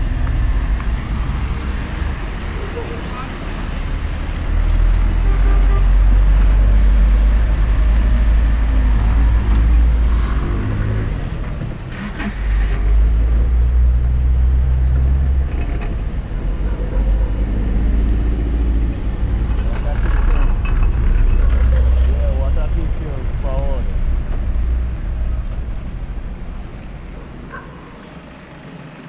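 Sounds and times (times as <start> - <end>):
steady low rumble: 17.5 - 27.6.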